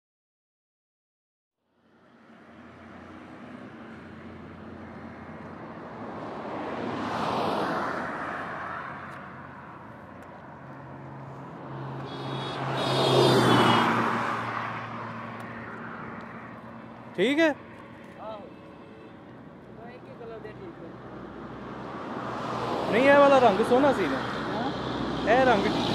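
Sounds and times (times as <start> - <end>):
vehicles passing by: 1.6 - 25.9.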